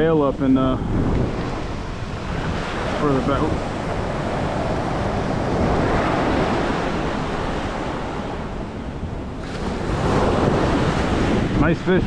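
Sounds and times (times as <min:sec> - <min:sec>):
wind on microphone: 0:00.0 - 0:12.0
ocean surf breaking on sand: 0:00.1 - 0:12.0.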